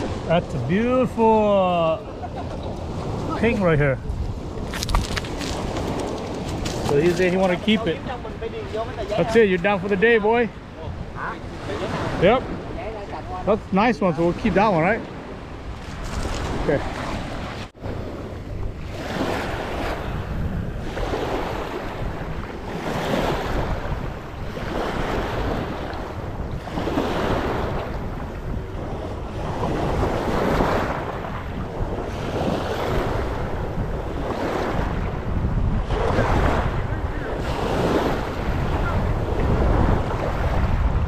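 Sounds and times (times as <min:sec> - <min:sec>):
wind rumble on microphone: 0:02.0 - 0:41.0
waves washing over pebbles: 0:02.8 - 0:10.0.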